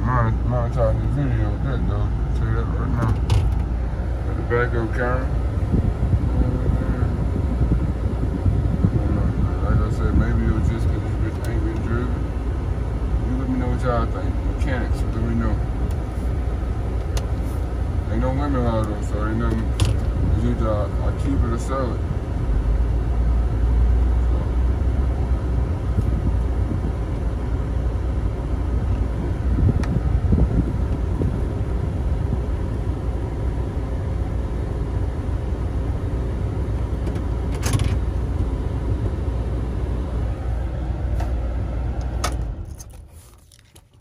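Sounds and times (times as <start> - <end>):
car engine idling: 0.0 - 44.0.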